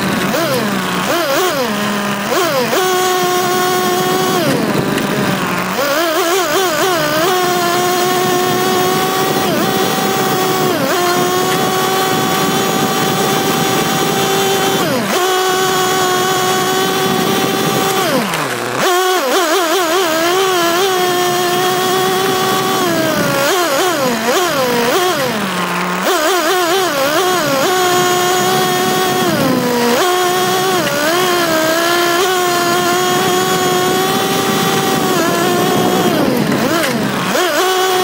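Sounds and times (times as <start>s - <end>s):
small engine revving: 0.0s - 38.0s.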